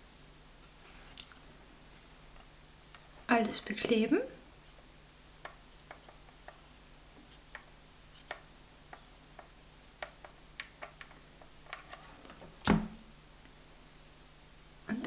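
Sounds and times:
dull thump: 12.6s - 13.0s.

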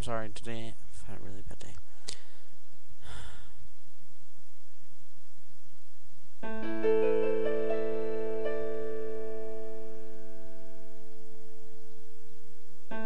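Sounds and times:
faint low hum: 0.0s - 13.0s
electronic keyboard piano notes: 6.4s - 11.9s.

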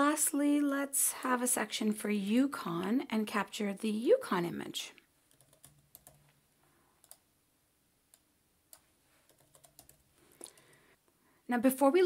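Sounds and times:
computer keyboard clicks: 5.3s - 6.3s, 8.1s - 10.8s.

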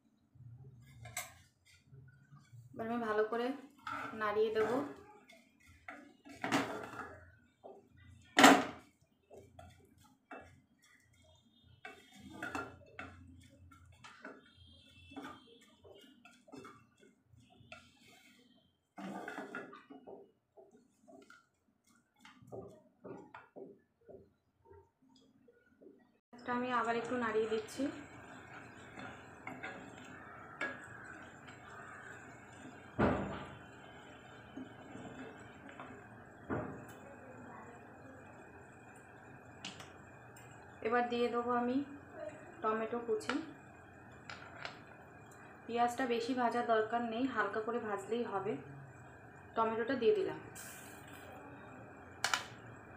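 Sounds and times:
onions frying in oil: 0.8s - 18.3s, 26.4s - 52.9s
spatula scraping metal pot: 3.7s - 7.3s, 9.4s - 19.8s, 26.9s - 33.6s.

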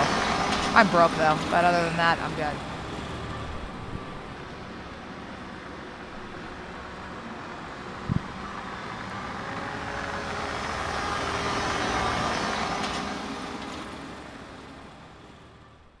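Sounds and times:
ice resurfacer engine passing: 0.0s - 15.9s
short low thump: 8.0s - 8.4s.

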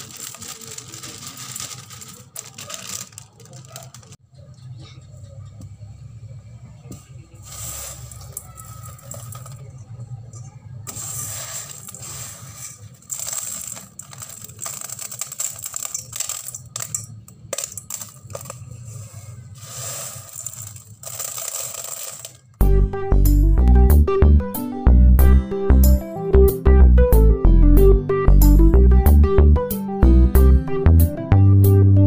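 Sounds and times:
rice rattling in steel bowl: 0.0s - 4.2s, 7.5s - 9.6s, 10.9s - 18.6s, 19.6s - 22.5s.

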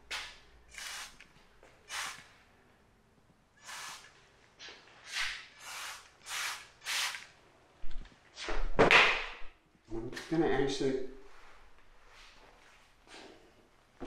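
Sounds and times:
spray bottle spritzes: 0.7s - 1.2s, 1.9s - 2.3s, 3.6s - 4.1s, 5.1s - 7.3s.

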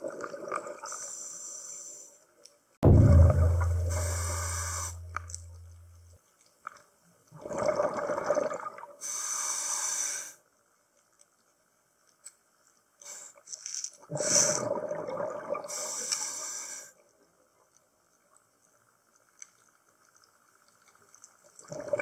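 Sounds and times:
exhaled bubbles burbling: 7.4s - 8.8s, 14.5s - 15.7s, 21.7s - 22.0s
regulator inhalation hiss: 9.0s - 10.4s.

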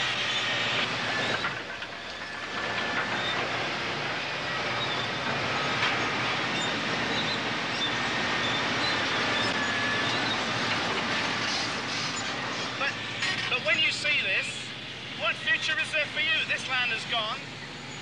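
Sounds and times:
steel tracks clanking: 0.0s - 15.1s
bulldozer engine running: 0.0s - 18.0s
high squeals: 4.2s - 10.6s.

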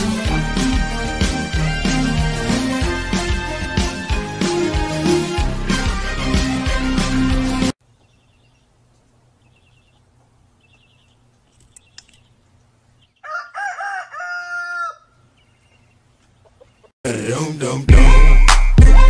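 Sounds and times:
rooster crowing: 13.2s - 15.2s.

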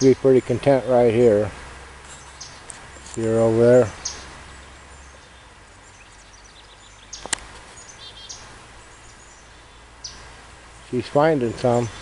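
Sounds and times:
faint background hiss: 0.0s - 12.0s
sharp click: 7.2s - 7.6s.

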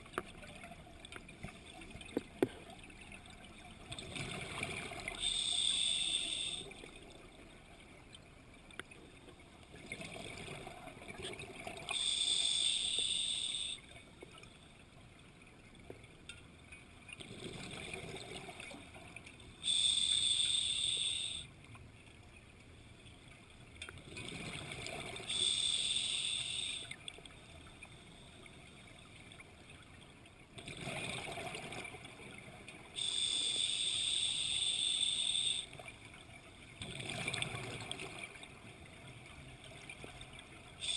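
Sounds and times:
scuba regulator breathing: 5.2s - 6.8s, 11.9s - 13.8s, 19.6s - 21.5s, 25.3s - 27.0s, 33.0s - 35.7s.

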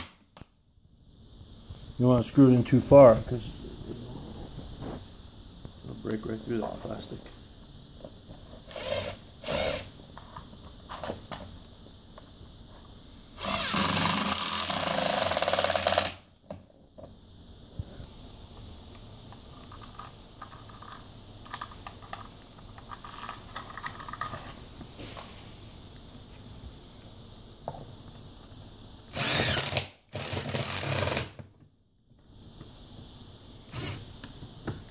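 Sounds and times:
impact driver driving screw: 8.7s - 9.9s, 13.4s - 16.2s, 29.2s - 31.3s.

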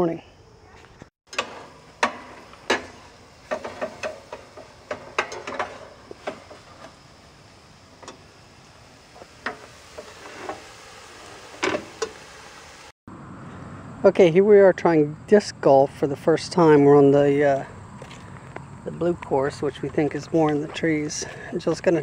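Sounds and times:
camp stove hiss: 1.3s - 13.0s
utensil scraping in metal saucepan: 9.4s - 12.2s.

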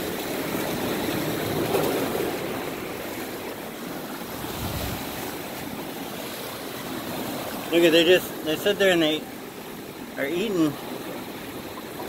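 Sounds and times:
surf washing among rocks: 0.0s - 12.0s.

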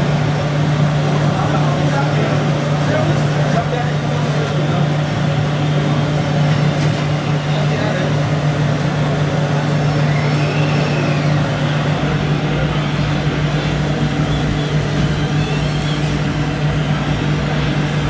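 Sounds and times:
toy truck motor drone: 10.1s - 17.6s.

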